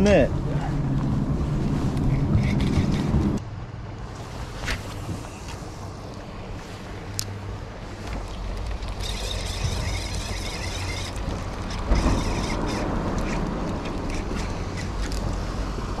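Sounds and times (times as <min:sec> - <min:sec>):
wind on microphone: 0:00.3 - 0:03.4
fishing reel whirring: 0:08.8 - 0:14.9.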